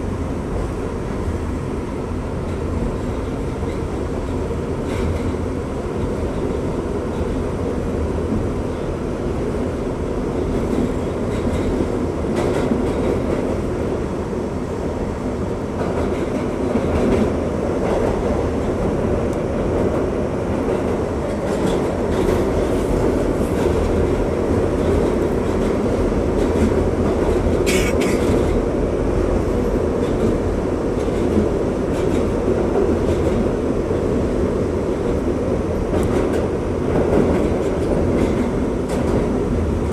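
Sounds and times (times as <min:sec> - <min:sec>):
wheels rumbling on rails: 0:00.0 - 0:39.9
clicks at rail joints: 0:35.9 - 0:39.9.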